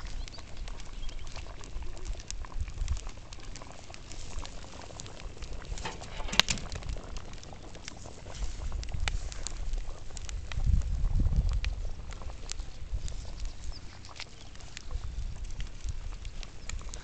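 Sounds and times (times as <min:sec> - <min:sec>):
stew boiling: 0:00.0 - 0:17.0
wood fire crackling: 0:00.0 - 0:17.0
low uneven rumble: 0:01.7 - 0:13.3.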